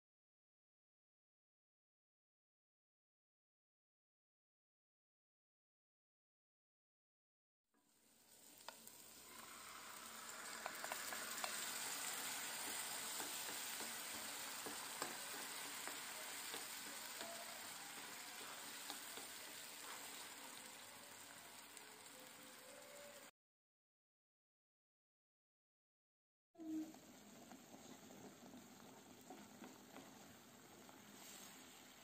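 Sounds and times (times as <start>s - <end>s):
tomato sizzling in a frying pan: 7.8s - 23.3s, 26.6s - 32.0s.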